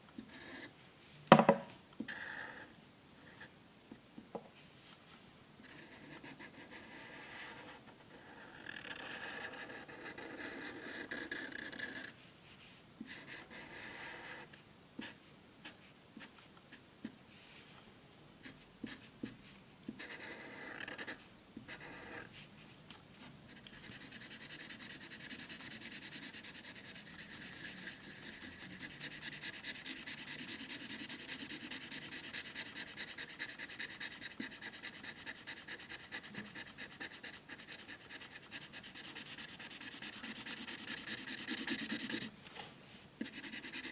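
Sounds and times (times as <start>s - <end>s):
marker scribbling on paper: 20.0s - 22.2s, 23.5s - 42.3s, 43.2s - 43.9s.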